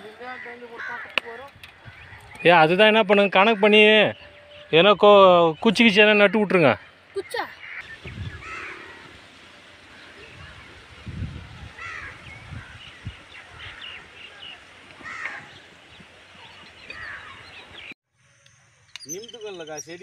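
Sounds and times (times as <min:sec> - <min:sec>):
faint rural background: 0:00.0 - 0:20.0
crow cawing: 0:00.2 - 0:01.3, 0:08.4 - 0:09.2, 0:11.8 - 0:12.8, 0:13.6 - 0:15.6, 0:17.0 - 0:17.4.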